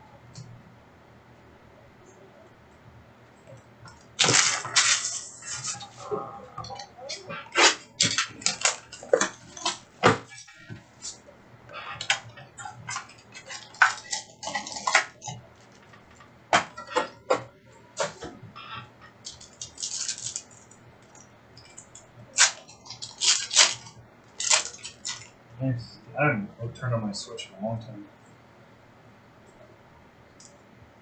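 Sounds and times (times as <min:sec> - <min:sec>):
cards rustling: 0:04.2 - 0:06.1, 0:19.3 - 0:20.7, 0:22.4 - 0:25.3.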